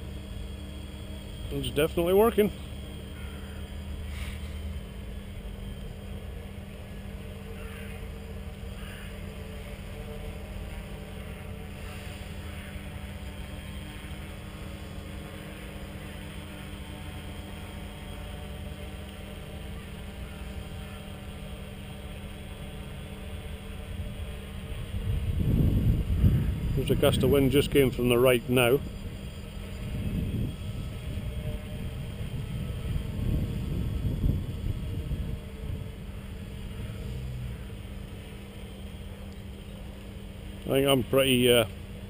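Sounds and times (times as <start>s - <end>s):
quadcopter hovering: 0.0s - 42.0s
wind rumbling on microphone: 23.6s - 37.9s.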